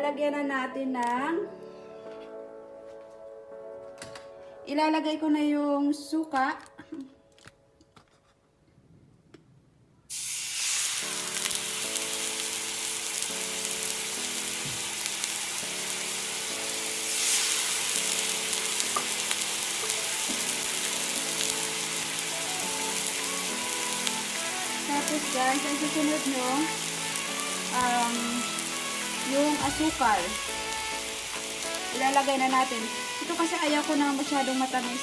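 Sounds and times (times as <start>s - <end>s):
vinegar sizzling in hot pan: 10.1s - 35.0s.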